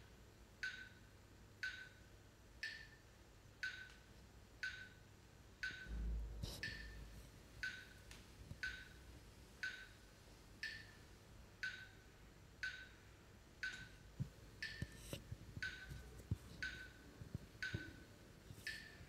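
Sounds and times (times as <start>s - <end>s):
sharp woody ticking: 7.6s - 9.0s, 9.6s - 10.0s, 10.6s - 11.0s, 12.6s - 13.0s, 14.6s - 18.0s.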